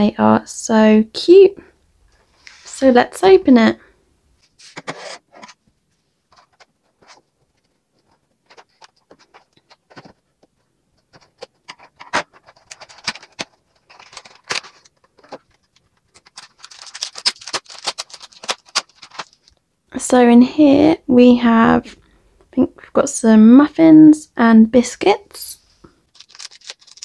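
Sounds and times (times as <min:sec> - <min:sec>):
plastic tray crackling: 0:06.3 - 0:19.6, 0:26.1 - 0:27.0.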